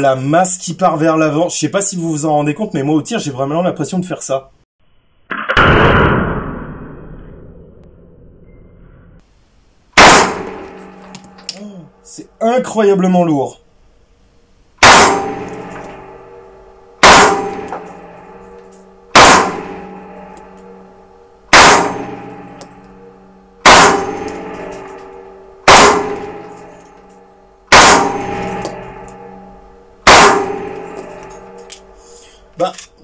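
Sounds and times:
submachine gun single shots: 10.0 - 11.1, 14.8 - 16.0, 17.0 - 17.8, 19.1 - 19.8, 21.5 - 22.3, 23.6 - 24.8, 25.6 - 26.5, 27.7 - 28.8, 30.0 - 30.8
metallic ringing decay: 10.1 - 13.4, 14.8 - 33.0.

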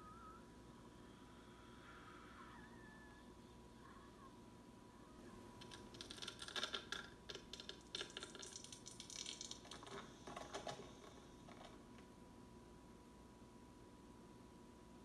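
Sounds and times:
faint steady high tone: 0.0 - 5.6
rapid irregular clicking and crackling: 5.6 - 12.1.

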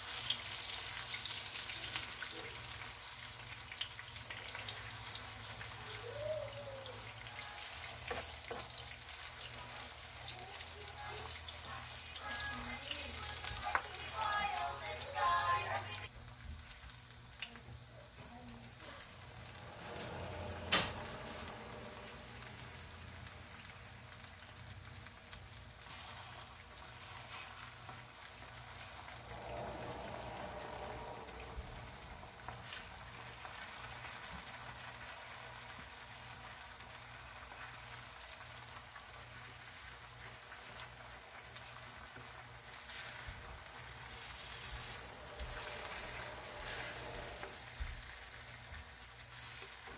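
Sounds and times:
tortillas sizzling in oil: 0.0 - 49.9.

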